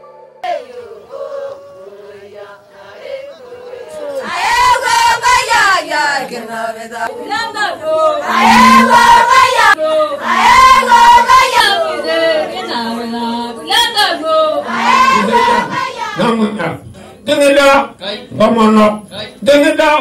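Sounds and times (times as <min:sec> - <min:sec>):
women singing together: 0:00.4 - 0:16.2.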